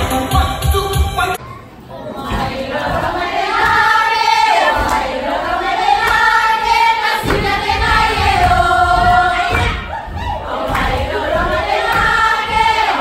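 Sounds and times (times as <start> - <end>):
girls singing together: 1.8 - 13.0
low thuds: 7.1 - 13.0.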